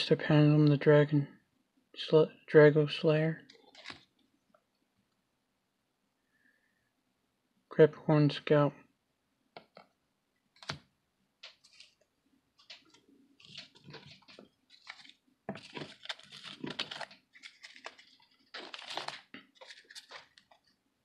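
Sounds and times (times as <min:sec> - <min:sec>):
trading cards rustling: 0:03.4 - 0:04.1, 0:11.4 - 0:20.8.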